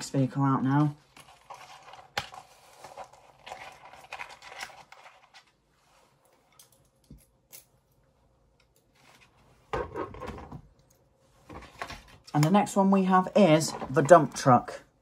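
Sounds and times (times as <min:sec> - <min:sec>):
plastic packaging rustling: 0:01.0 - 0:05.6.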